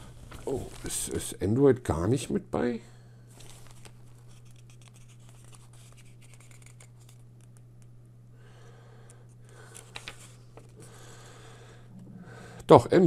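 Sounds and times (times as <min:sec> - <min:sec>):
steady low hum: 0:00.0 - 0:13.0
paper pages rustling: 0:00.1 - 0:01.2, 0:03.3 - 0:07.6, 0:09.6 - 0:10.9.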